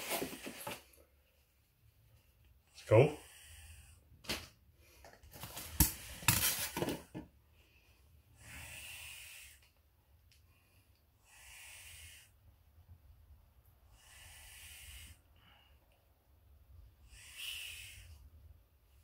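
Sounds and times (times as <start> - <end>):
plastic bag rustling: 0.0 - 0.8
snake hissing: 8.4 - 9.6, 11.2 - 12.4, 13.9 - 15.3, 17.0 - 18.3.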